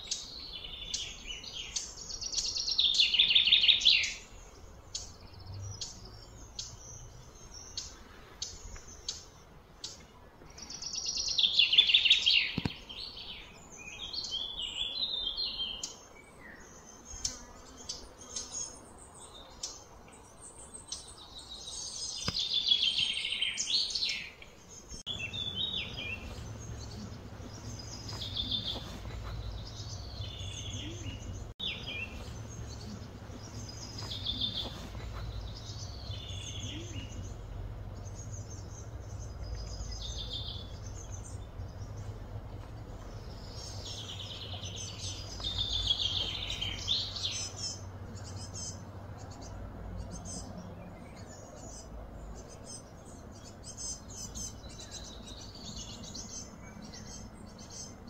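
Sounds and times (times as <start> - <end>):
birds chirping: 0.0 - 58.0
low outdoor rumble: 24.7 - 58.0.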